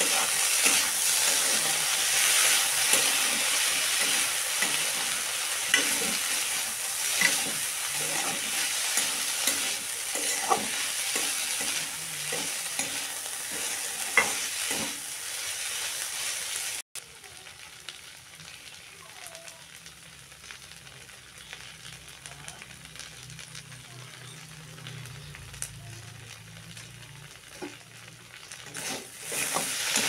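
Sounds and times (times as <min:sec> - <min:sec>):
spatula scraping and knocking pan: 0:00.0 - 0:15.0, 0:28.7 - 0:30.0
potatoes sizzling in oil: 0:00.0 - 0:30.0.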